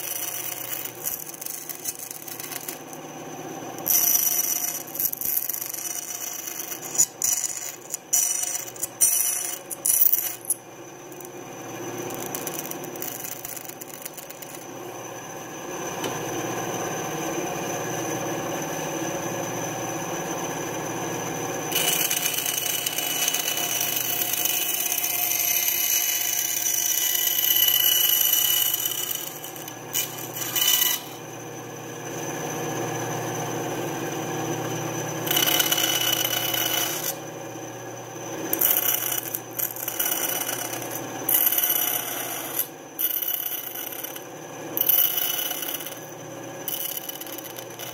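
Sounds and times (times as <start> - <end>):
saw blade cutting plywood: 0.0 - 3.0, 3.7 - 14.7, 21.7 - 31.2, 35.2 - 37.3, 38.4 - 44.2, 44.8 - 47.9
bandsaw motor hum: 0.0 - 47.9.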